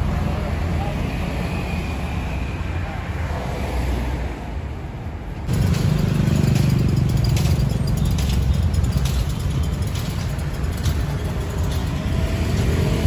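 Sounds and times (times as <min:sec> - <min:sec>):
vehicle engine rumbling: 0:05.0 - 0:13.0.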